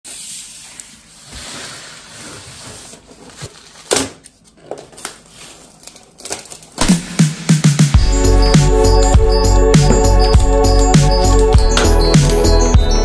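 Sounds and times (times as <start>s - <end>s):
cardboard rustling scrape: 0.1s - 5.8s.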